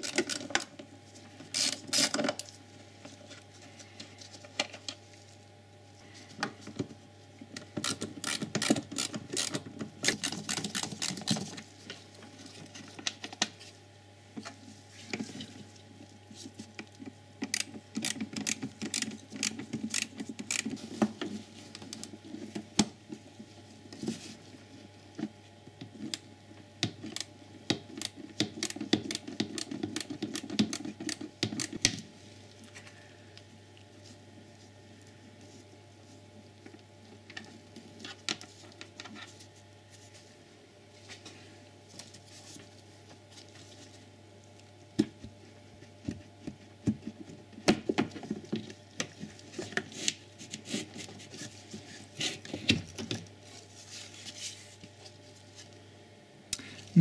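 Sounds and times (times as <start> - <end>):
screws and plastic lid rattling: 7.6 - 11.6, 17.4 - 20.8.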